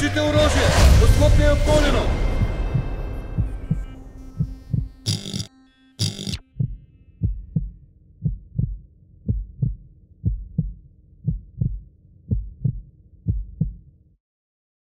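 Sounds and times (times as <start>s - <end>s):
heartbeat thumps: 2.3s - 13.9s.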